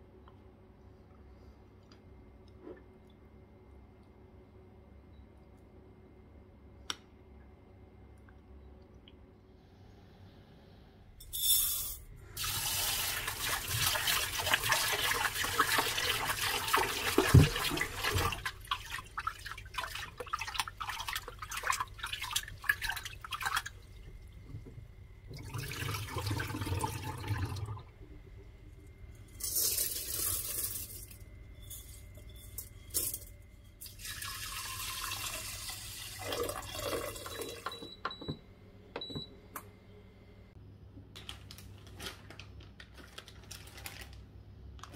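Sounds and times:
water running and splashing: 12.4 - 23.9.

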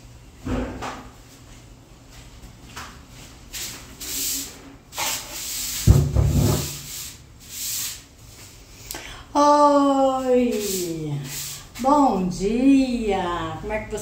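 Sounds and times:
rubbing and brushing: 3.5 - 8.6, 10.2 - 11.9.

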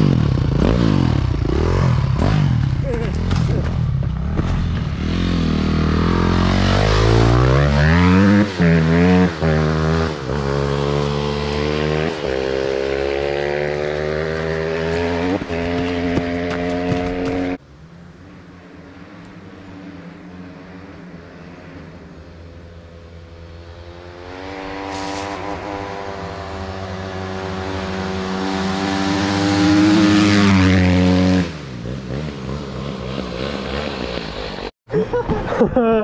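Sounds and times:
dirt bike engine revving: 0.0 - 17.6, 23.7 - 34.7.

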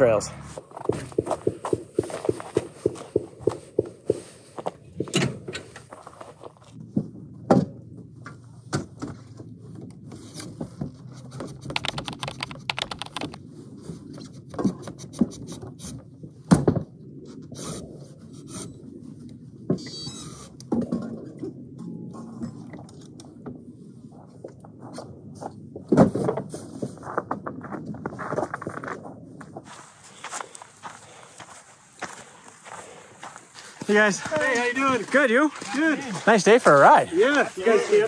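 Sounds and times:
ratchet strap clicking: 11.8 - 13.4.

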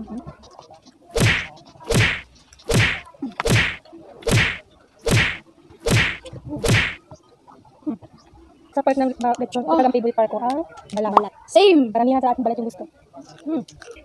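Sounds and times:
loud whacks with swishing tail: 1.2 - 7.0.

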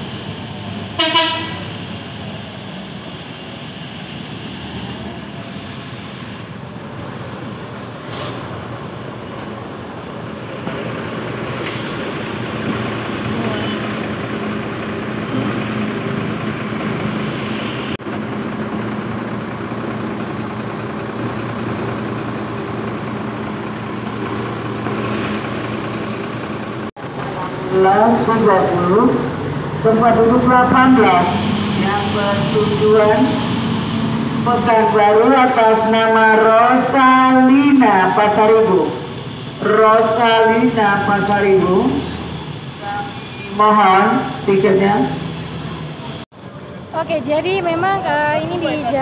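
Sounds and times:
bus diesel engine running: 0.0 - 49.0.

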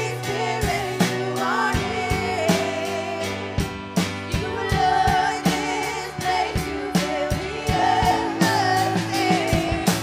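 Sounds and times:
woman singing: 0.0 - 3.7, 4.3 - 10.0
drum beat: 3.6 - 10.0.

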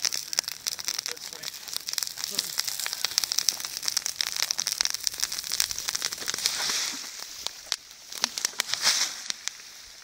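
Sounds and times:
brush fire crackling and popping: 0.0 - 10.0
short hiss: 6.3 - 7.5, 8.6 - 9.4.

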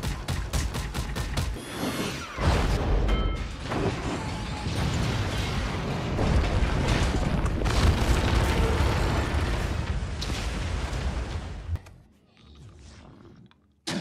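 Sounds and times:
heavy rumble of crashing debris: 3.6 - 11.8.

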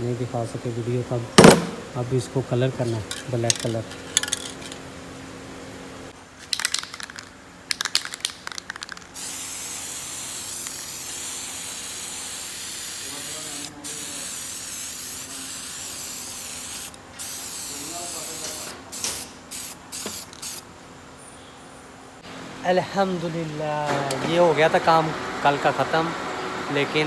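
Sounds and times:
spray can rattling: 3.1 - 4.8, 6.4 - 13.6, 18.9 - 20.6
aerosol spraying hiss: 9.2 - 20.6.

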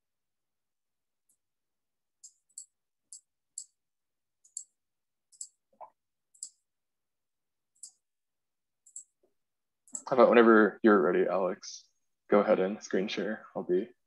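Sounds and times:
computer mouse clicking: 2.2 - 3.8, 4.4 - 6.7, 7.8 - 8.1, 8.8 - 9.3, 9.9 - 10.1.

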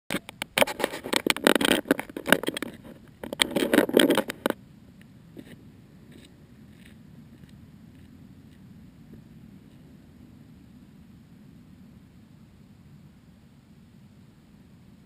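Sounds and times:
plane set down on gravel: 0.1 - 4.6.

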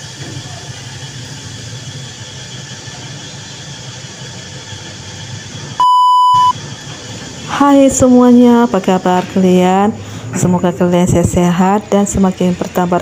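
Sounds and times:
ice cream machine humming: 0.0 - 13.0
test tone beep: 5.8 - 6.6.

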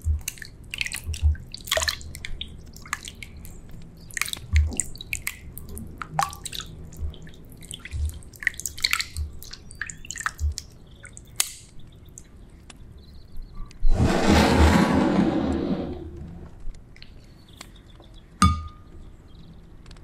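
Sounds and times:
soft low thumps: 0.0 - 0.2, 1.1 - 1.5, 7.9 - 8.2
hand squeezing meat in water: 0.0 - 12.3
water splashing and squelching: 0.0 - 12.3.

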